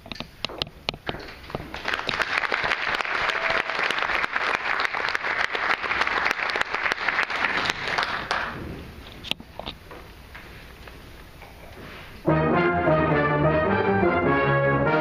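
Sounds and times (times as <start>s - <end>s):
audience applauding: 1.5s - 8.6s
brass band playing: 12.2s - 15.0s.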